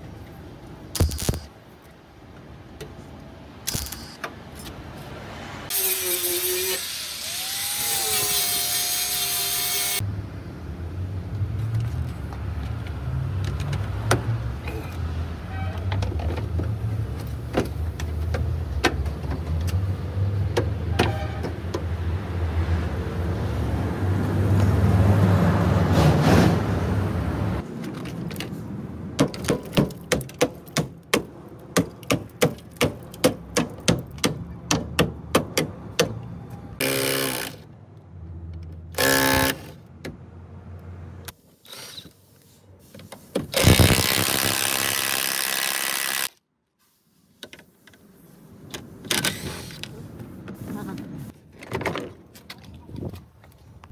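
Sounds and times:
cordless impact wrench: 36.8s - 37.6s, 38.9s - 39.8s, 43.5s - 46.4s.

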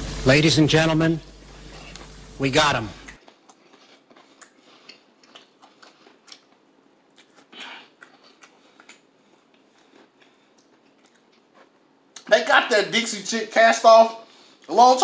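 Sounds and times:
chewing crispy fried chicken: 3.0s - 12.3s.

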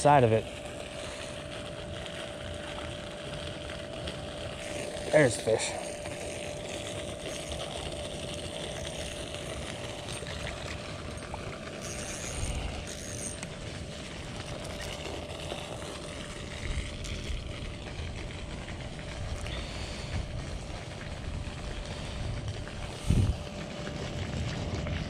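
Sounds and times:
fishing reel cranking: 4.5s - 20.2s
wind rumble on microphone: 22.1s - 25.0s.

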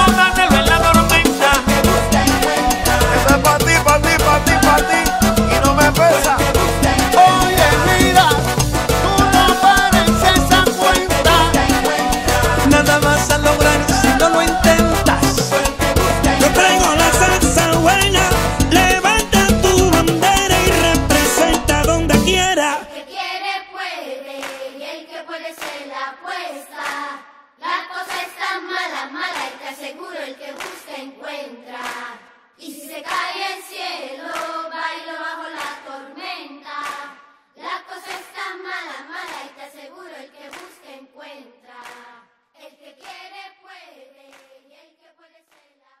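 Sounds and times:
voices singing together: 0.0s - 45.8s
hand claps: 24.4s - 24.8s, 25.6s - 25.9s, 26.7s - 27.1s, 28.0s - 28.5s, 29.3s - 29.8s, 30.6s - 31.0s, 31.8s - 32.4s, 34.3s - 34.6s, 35.5s - 35.9s, 36.8s - 37.2s, 38.0s - 38.4s, 39.2s - 39.6s, 40.5s - 40.8s, 41.8s - 42.1s, 43.0s - 43.2s, 44.3s - 44.5s.

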